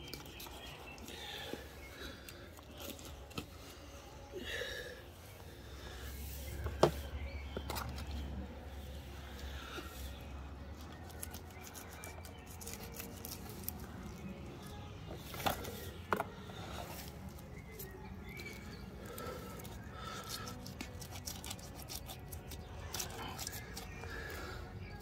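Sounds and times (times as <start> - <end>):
knife scraping fish scales: 11.1 - 13.8, 19.1 - 24.0.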